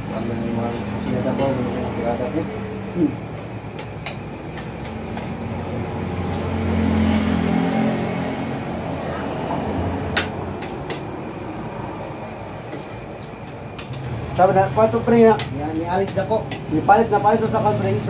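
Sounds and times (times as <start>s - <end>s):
cutlery tapping on plates: 3.4s - 5.4s, 10.1s - 11.1s, 12.7s - 14.2s, 15.1s - 17.4s.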